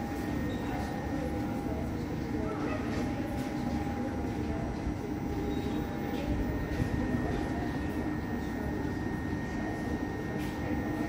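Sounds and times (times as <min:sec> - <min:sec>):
station background noise: 0:00.0 - 0:11.0
tram electrical hum: 0:00.0 - 0:11.0.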